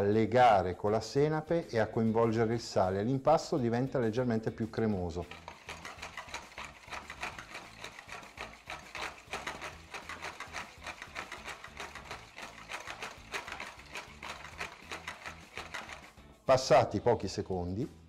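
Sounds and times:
whisk clicking against bowl: 5.2 - 16.2.

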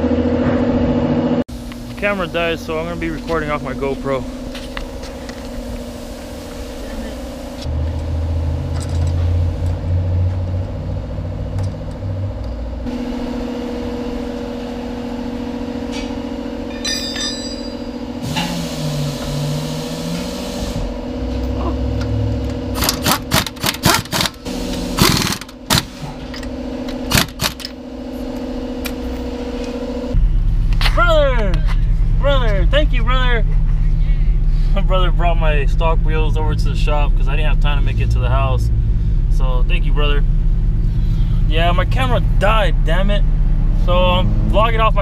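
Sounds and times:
mechanical hum: 0.0 - 44.5
tool clatter: 15.9 - 18.6, 22.8 - 27.8
impact wrench rattling: 22.8 - 27.8.

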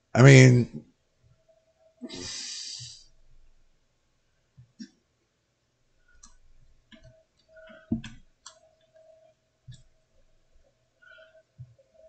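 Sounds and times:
computer mouse clicks: 6.1 - 9.9.

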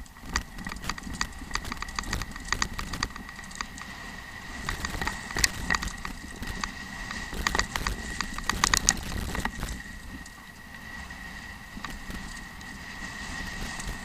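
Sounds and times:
tyres rumbling on gravel: 0.0 - 3.7, 4.5 - 9.8
bike frame rattling: 0.0 - 3.8, 4.6 - 9.8.

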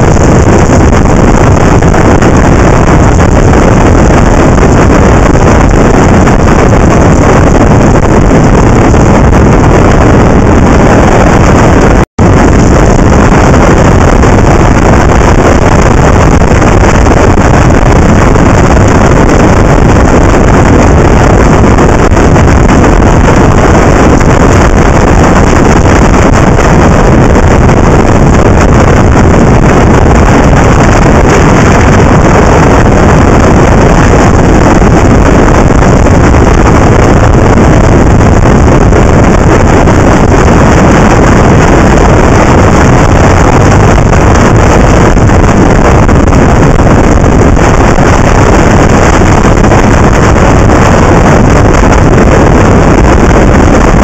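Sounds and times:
wind rushing on microphone: 0.0 - 54.0.

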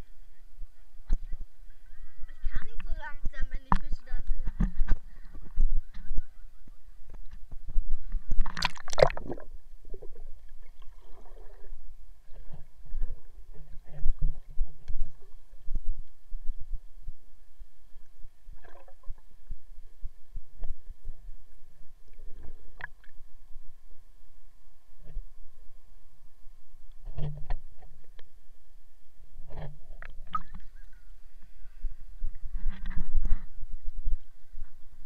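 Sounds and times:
loud splash: 8.4 - 9.5
water sloshing and splashing: 8.4 - 15.8, 18.5 - 19.2, 29.5 - 30.8.

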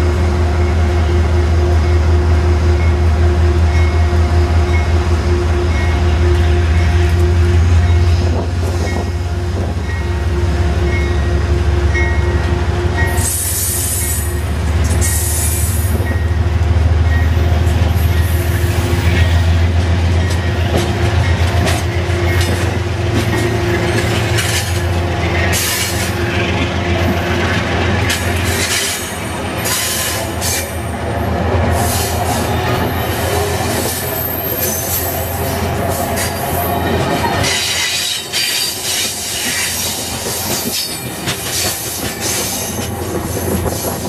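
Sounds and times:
train wheels rumbling on rail: 0.0 - 44.0
high-pitched wheel squeal: 32.9 - 35.6.

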